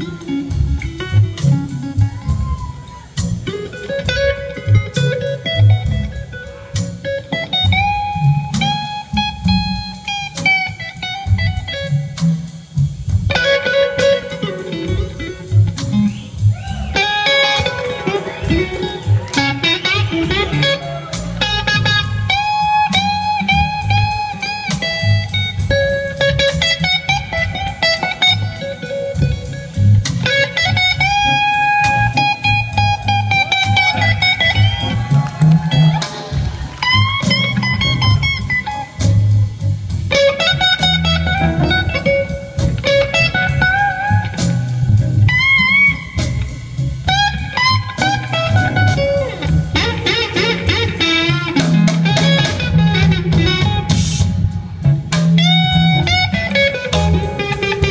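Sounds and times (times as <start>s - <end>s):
blues-rock band playing: 0.0s - 57.9s
electric guitar solo: 0.0s - 57.9s.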